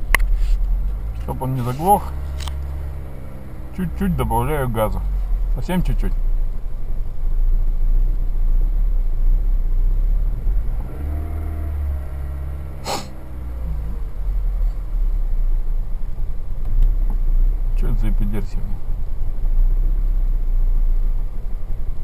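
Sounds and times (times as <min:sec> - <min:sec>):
car engine idling unevenly: 0:00.0 - 0:22.0
short sharp noise: 0:12.8 - 0:13.2.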